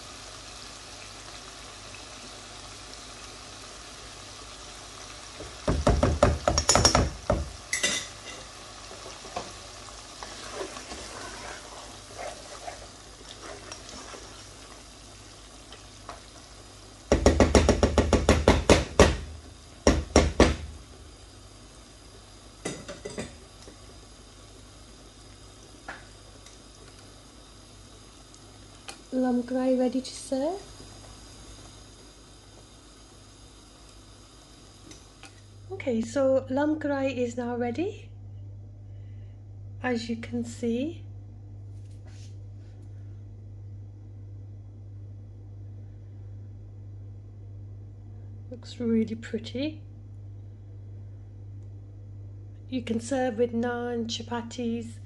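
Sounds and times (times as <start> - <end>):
food sizzling in pan: 0.0 - 36.9.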